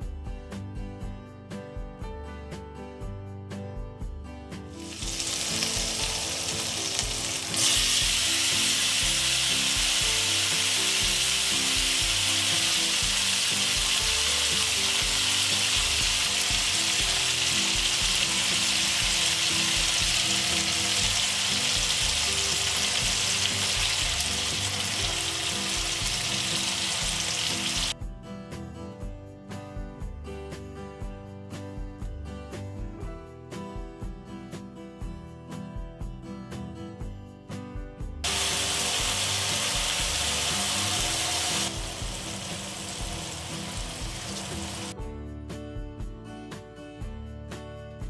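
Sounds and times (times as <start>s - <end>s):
soft background music: 0.0s - 48.0s
hot oil sizzling in a frying pan: 4.8s - 28.0s, 38.2s - 45.0s.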